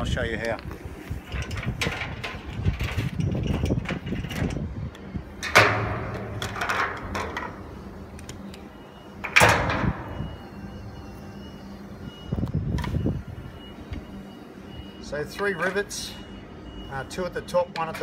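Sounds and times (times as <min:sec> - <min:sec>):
loud metallic bangs: 0:05.4 - 0:07.8.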